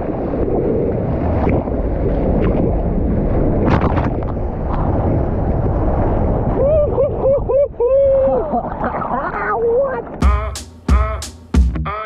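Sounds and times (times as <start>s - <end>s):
wind buffeting microphone: 0.0s - 10.2s.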